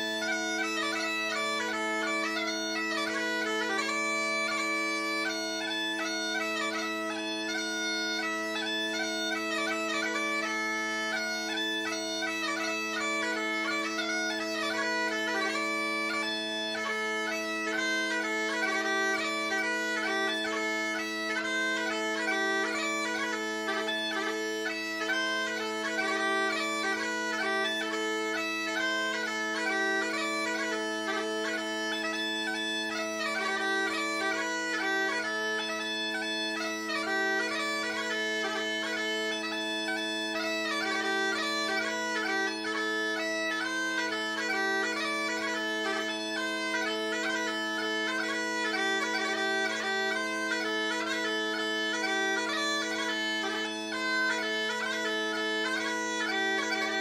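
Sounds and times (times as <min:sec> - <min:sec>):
bagpipe chanter melody: 0:00.0 - 0:57.0
bagpipe drones: 0:00.0 - 0:57.0.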